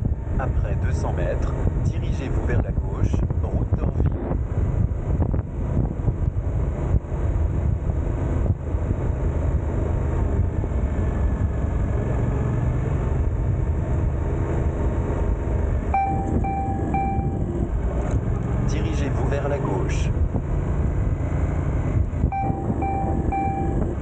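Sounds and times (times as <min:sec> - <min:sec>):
short electronic beeps: 0:16.0 - 0:17.6, 0:22.3 - 0:24.0
motorcycle engine running: 0:20.4 - 0:24.0.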